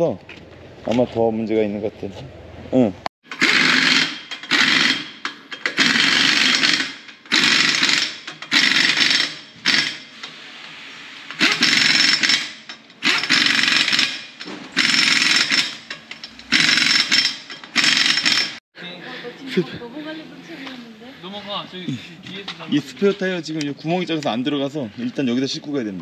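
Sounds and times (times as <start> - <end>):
impact wrench bursts: 3.2 - 10.5, 11.2 - 18.6.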